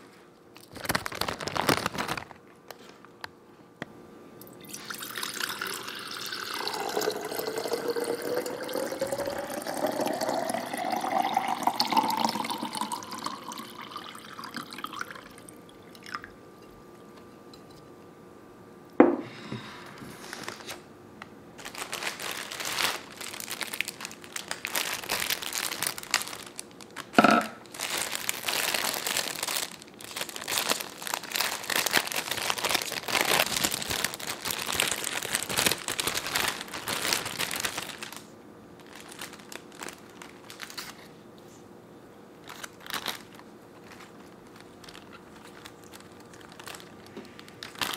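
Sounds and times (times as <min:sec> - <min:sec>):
plastic wrapping crinkling: 0:00.5 - 0:03.1, 0:20.1 - 0:20.8, 0:21.6 - 0:41.2, 0:42.4 - 0:47.9
water filling glass vase: 0:04.4 - 0:16.4
knock: 0:19.0 - 0:19.3.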